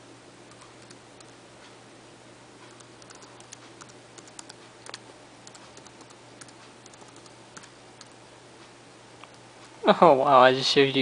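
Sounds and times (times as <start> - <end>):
laptop keyboard typing: 0.5 - 1.4, 2.6 - 8.2.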